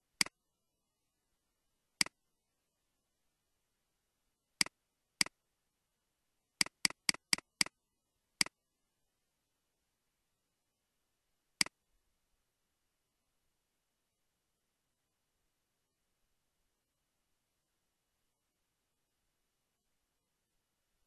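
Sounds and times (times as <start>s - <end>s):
computer mouse clicks: 0.1s - 0.4s, 6.6s - 7.8s.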